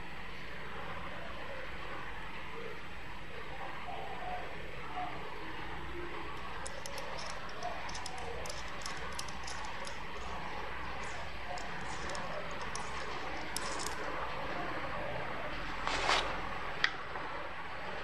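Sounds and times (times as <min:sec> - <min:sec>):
small metal parts clicking: 0:06.4 - 0:10.4, 0:11.0 - 0:14.2.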